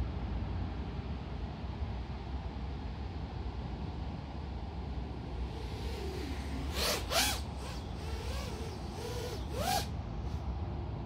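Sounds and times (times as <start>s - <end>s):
drone motors whining: 5.4s - 10.4s.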